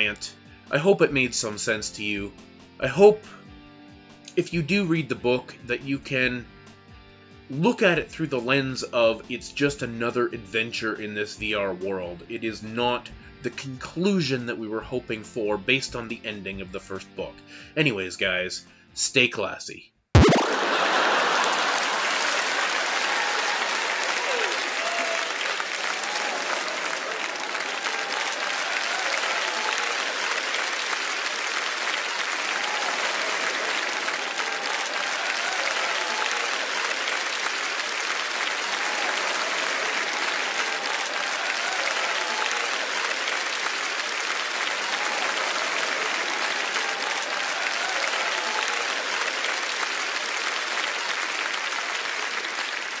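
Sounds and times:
crowd applauding: 0:20.2 - 0:53.0.

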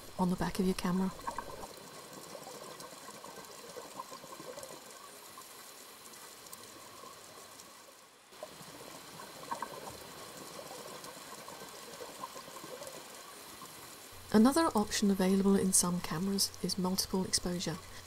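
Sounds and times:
water trickling and bubbling: 0:00.0 - 0:18.0.

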